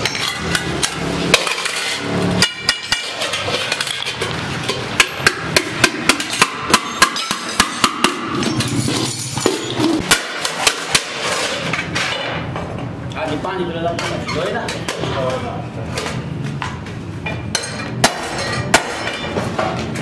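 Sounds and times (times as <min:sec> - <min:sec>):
hammer striking metal can: 0:05.0 - 0:08.7.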